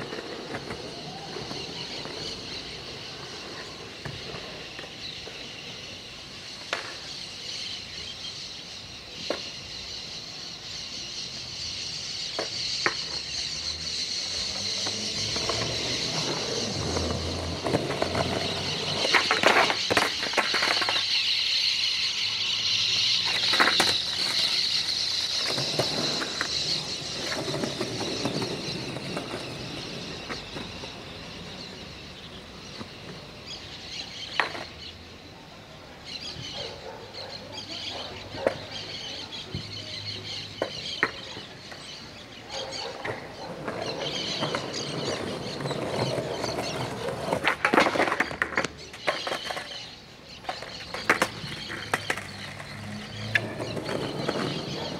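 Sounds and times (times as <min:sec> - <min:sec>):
skateboard clacking on concrete: 0:00.0 - 0:05.8, 0:06.4 - 0:07.4, 0:12.2 - 0:13.5, 0:14.4 - 0:22.0, 0:22.9 - 0:33.3, 0:34.1 - 0:34.8, 0:38.3 - 0:39.7, 0:40.4 - 0:42.0, 0:42.6 - 0:54.9.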